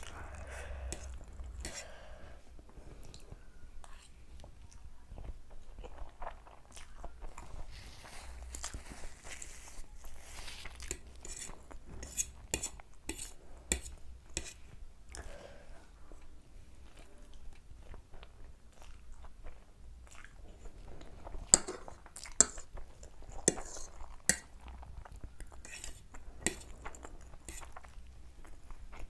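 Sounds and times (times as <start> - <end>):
wet chewing: 3.0 - 15.4, 16.2 - 29.0
fork scraping and clinking on plate: 10.8 - 14.6, 25.6 - 26.7.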